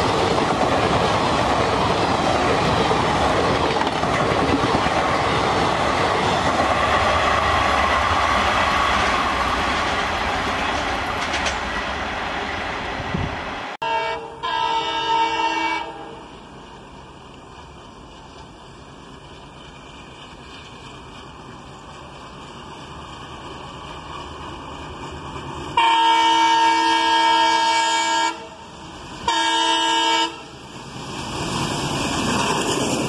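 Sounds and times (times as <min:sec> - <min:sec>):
train wheels on rails: 0:00.0 - 0:33.0
locomotive horn blasts: 0:13.8 - 0:16.3, 0:25.8 - 0:28.6, 0:29.3 - 0:30.5.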